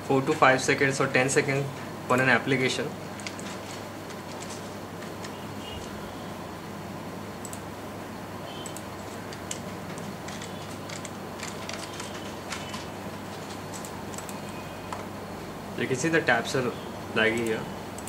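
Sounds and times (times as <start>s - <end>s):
steady low hum: 0.0s - 18.0s
mouse and keyboard clicking: 8.6s - 15.1s.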